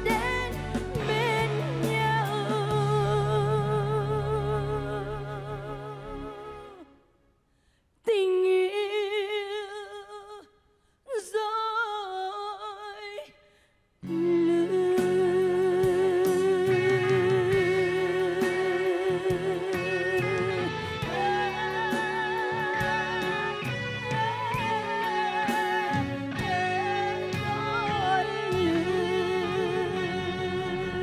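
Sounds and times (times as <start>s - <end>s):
band playing: 0.0s - 6.7s, 14.2s - 31.0s
woman singing with vibrato: 0.0s - 7.0s, 8.1s - 13.4s, 14.0s - 31.0s.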